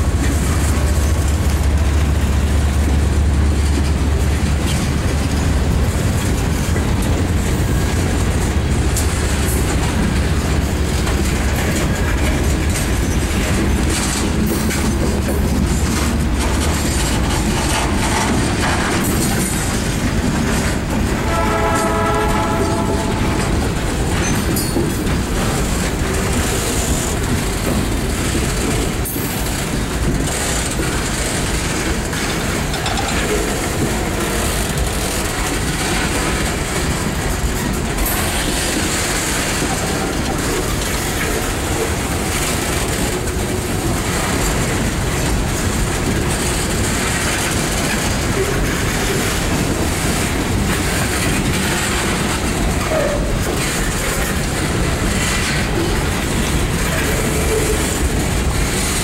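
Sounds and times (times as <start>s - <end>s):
clickety-clack over rail joints: 0.0s - 59.0s
freight train wheels rumbling on rails: 0.0s - 59.0s
train horn: 21.2s - 23.6s.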